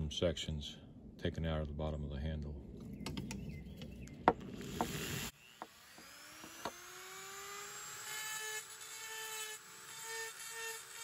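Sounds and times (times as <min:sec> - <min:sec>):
rotary tool whining and grinding: 0:03.2 - 0:11.0.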